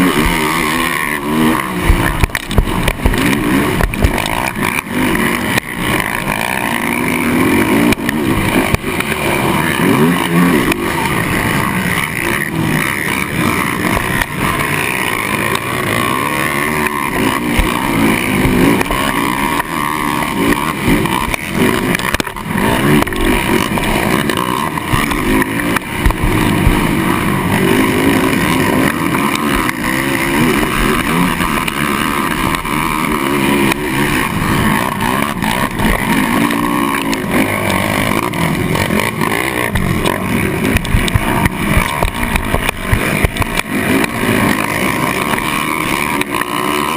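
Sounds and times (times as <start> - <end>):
quad bike engine revving: 0.0 - 46.9.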